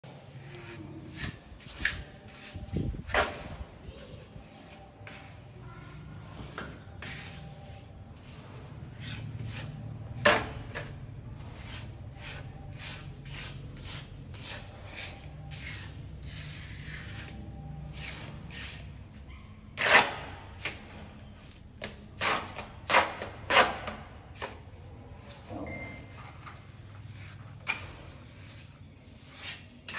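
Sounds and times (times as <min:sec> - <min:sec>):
trowel scraping bricks: 0:04.4 - 0:18.9.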